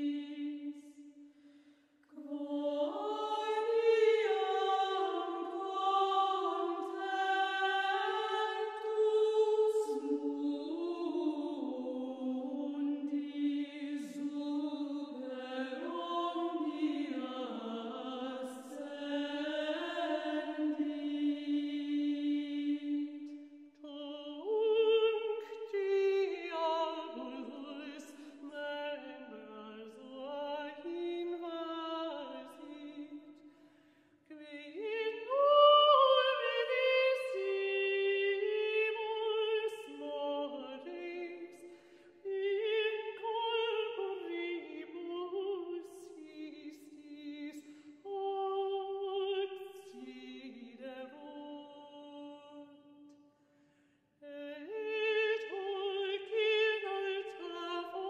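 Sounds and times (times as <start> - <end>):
chant-like singing: 0.0 - 1.3, 2.0 - 33.5, 34.2 - 53.2, 54.2 - 58.0.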